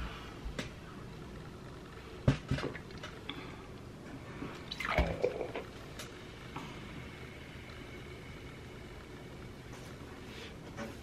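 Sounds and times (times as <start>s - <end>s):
liquid glugging in plastic bottle: 4.7s - 5.7s.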